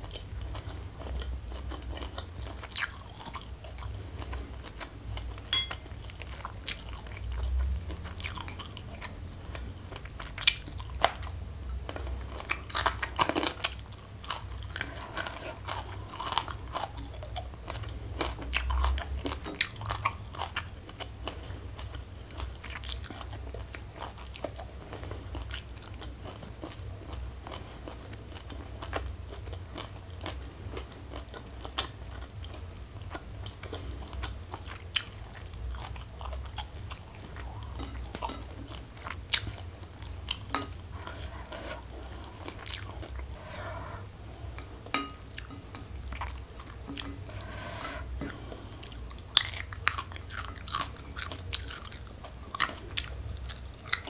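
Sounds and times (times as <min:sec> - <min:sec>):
chewing crisp vegetables: 0:00.0 - 0:54.0.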